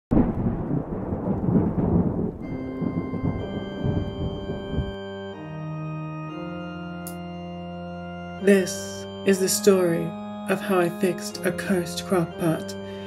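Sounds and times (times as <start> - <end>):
thunder rumble: 0.1 - 5.4
pipe organ chords: 2.4 - 13.0.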